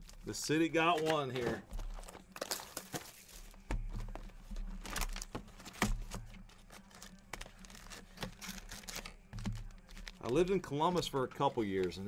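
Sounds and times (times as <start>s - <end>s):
wrappers crinkling: 0.0s - 12.0s
card taps and clicks: 0.8s - 2.2s.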